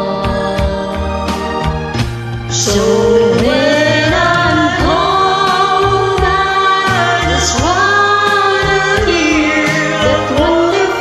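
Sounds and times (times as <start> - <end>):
karaoke backing track: 0.0 - 11.0
person singing long held notes: 2.5 - 11.0.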